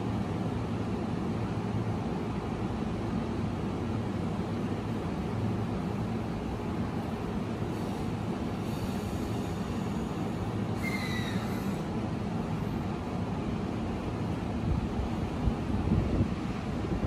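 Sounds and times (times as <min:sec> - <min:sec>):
electric train equipment humming: 0:00.0 - 0:17.0.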